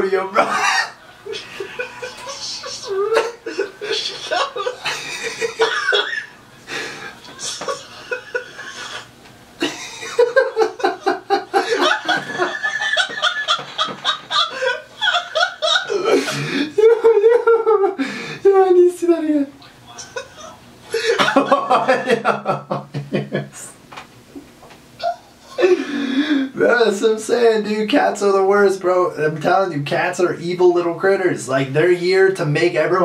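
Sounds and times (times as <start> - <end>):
man laughing hard: 0.3 - 18.5, 19.8 - 23.7, 25.0 - 26.6.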